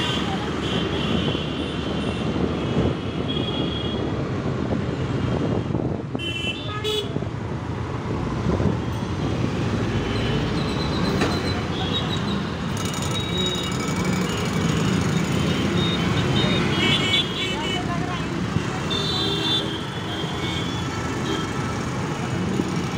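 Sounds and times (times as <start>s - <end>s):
street traffic rumble: 0.0s - 22.9s
vehicle horns honking: 15.4s - 17.9s.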